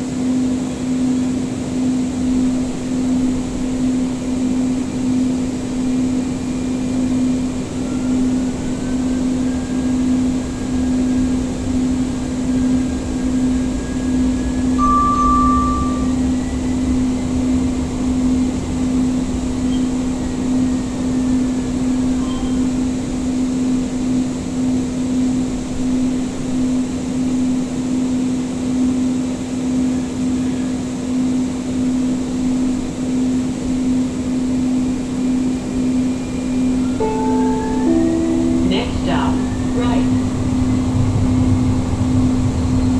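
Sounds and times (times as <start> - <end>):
train interior hum: 0.0 - 42.9
traction drive whine: 1.9 - 42.9
short beep: 14.8 - 16.2
low rolling rumble: 36.2 - 42.9.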